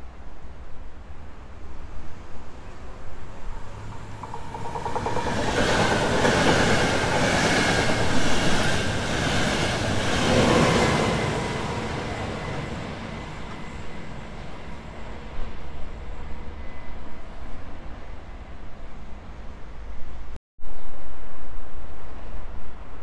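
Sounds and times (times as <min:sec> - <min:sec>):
train passing: 0:00.1 - 0:20.4
train wheels beating: 0:03.2 - 0:14.9.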